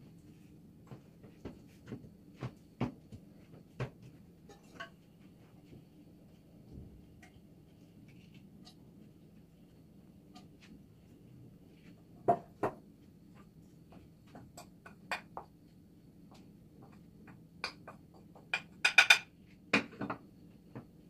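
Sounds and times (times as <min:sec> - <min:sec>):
dishes and utensils clinking: 0:04.5 - 0:05.0.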